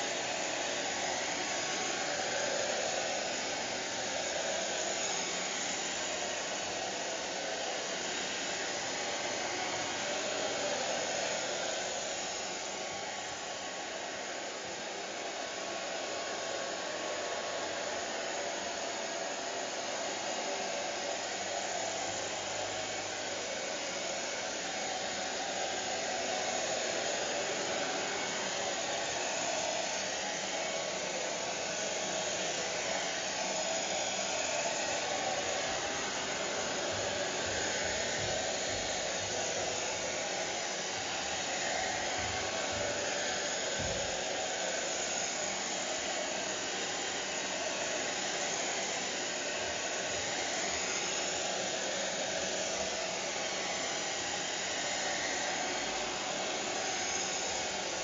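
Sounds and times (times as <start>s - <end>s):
hair dryer running: 0.0s - 58.0s.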